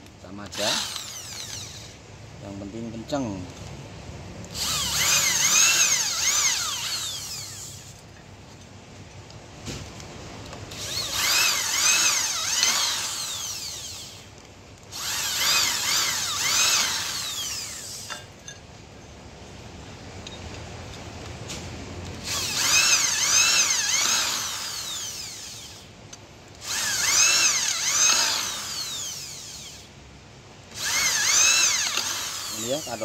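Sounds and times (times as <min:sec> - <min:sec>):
electric drill boring through metal: 0:00.5 - 0:02.0, 0:04.5 - 0:08.0, 0:10.7 - 0:14.3, 0:14.9 - 0:18.3, 0:22.2 - 0:25.9, 0:26.6 - 0:29.9, 0:30.7 - 0:33.0.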